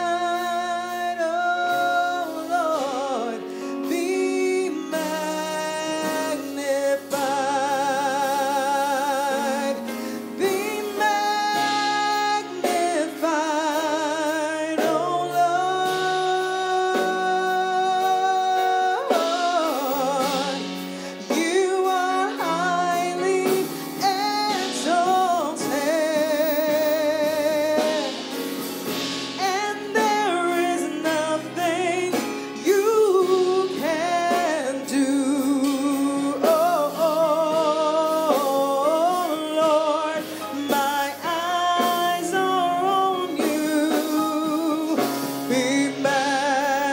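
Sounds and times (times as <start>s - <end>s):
keyboard chords: 0.0s - 46.9s
woman singing with vibrato: 10.5s - 28.3s, 29.4s - 46.9s.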